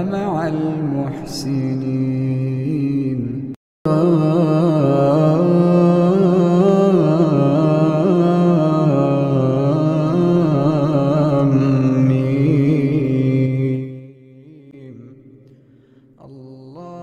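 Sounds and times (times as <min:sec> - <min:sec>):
man chanting: 0:00.0 - 0:15.4, 0:16.2 - 0:17.0.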